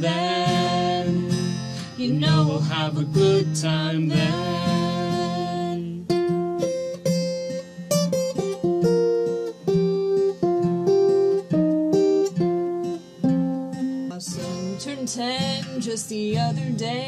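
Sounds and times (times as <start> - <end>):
acoustic guitar riff: 0.0 - 17.0.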